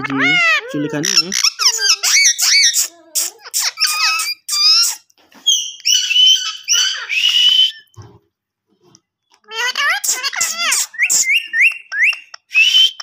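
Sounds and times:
parakeets chattering: 0.0 - 7.9, 9.4 - 13.0
parakeets screeching: 0.0 - 7.9, 9.5 - 13.0.

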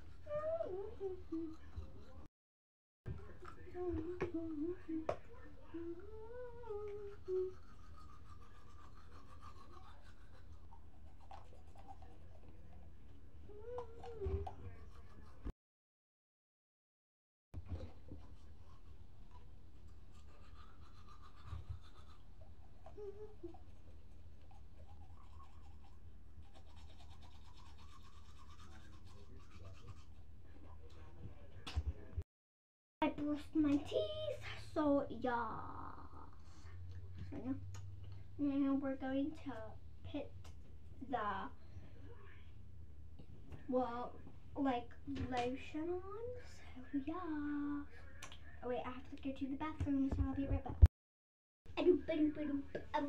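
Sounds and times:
toothbrush scrubbing teeth: 0.0 - 2.3, 3.1 - 5.1, 5.7 - 15.5, 17.7 - 31.2, 52.0 - 53.0
girl humming a tune: 0.3 - 1.7, 3.8 - 5.1, 5.7 - 7.7, 13.5 - 14.5, 22.9 - 23.5.

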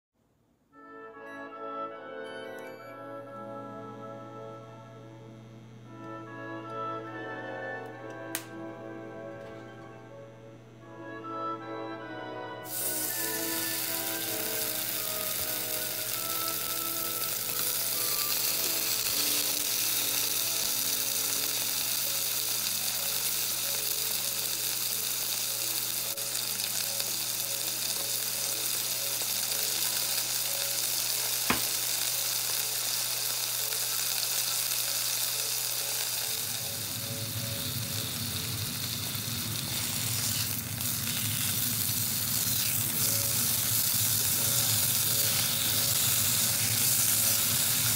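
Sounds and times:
steak sizzling in oil: 12.6 - 47.9.

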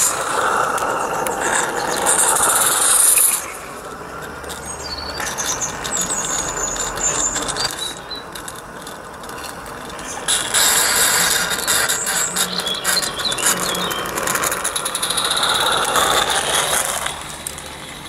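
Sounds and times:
steam locomotive chuffing: 0.0 - 18.0
wheels clicking over track: 0.0 - 18.0
short high squeaks: 9.4 - 16.6.

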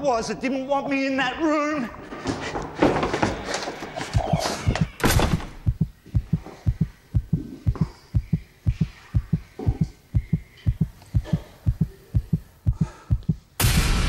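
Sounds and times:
heartbeat sound effect: 5.6 - 13.5.

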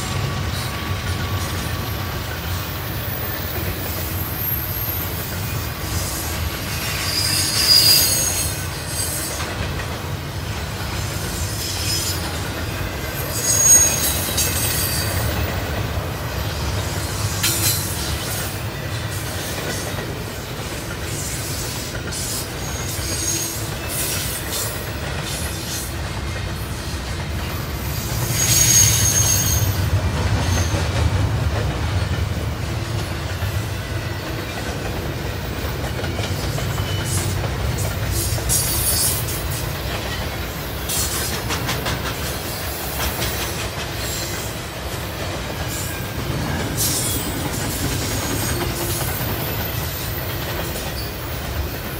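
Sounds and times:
train wheels rumbling on rail: 0.0 - 51.9
high-pitched wheel squeals: 6.7 - 9.4, 13.2 - 15.4, 27.8 - 30.8.

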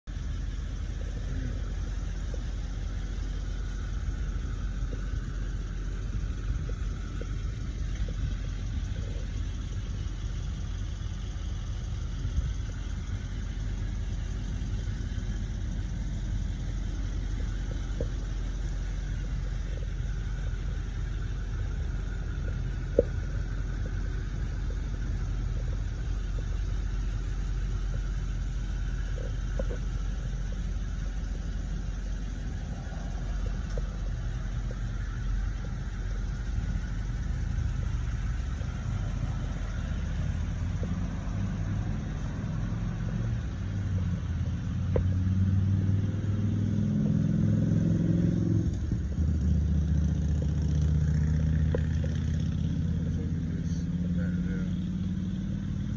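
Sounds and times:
diesel engine idling: 0.0 - 55.9
sharp clicks: 28.9 - 36.8.

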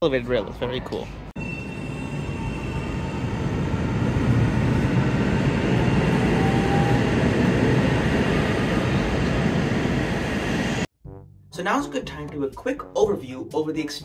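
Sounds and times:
light-rail train rumbling: 1.0 - 10.9
faint train whine: 1.4 - 10.9.

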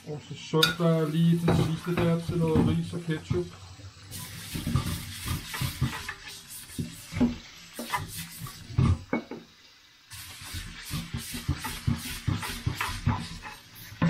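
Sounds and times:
running tap: 0.5 - 14.0
pot and utensils clinking: 0.6 - 2.8.

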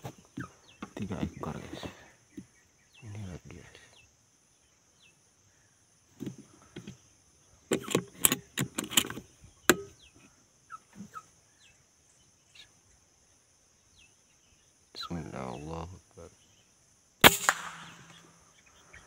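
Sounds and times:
high insect drone: 0.0 - 19.0
sharp knocks and clicks: 7.7 - 9.9.

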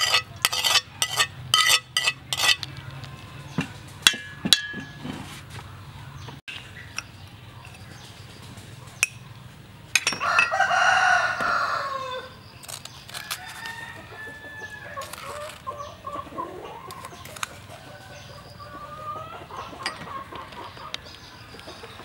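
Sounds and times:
chickens clucking: 4.8 - 22.0
rooster crowing: 10.2 - 12.4, 13.2 - 15.5.

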